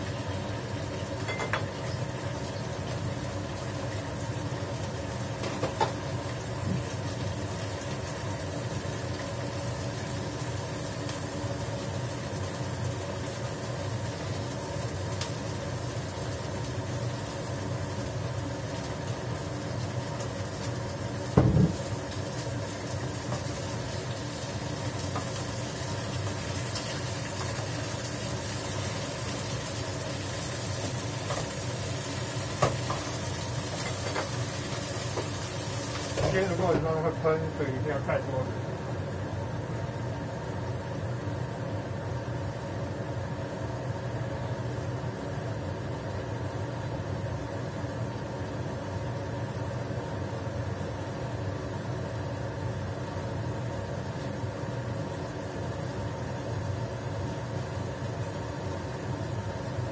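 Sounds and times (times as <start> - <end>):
tofu sizzling in frying pan: 0.0 - 59.9
loud knock: 21.4 - 21.8.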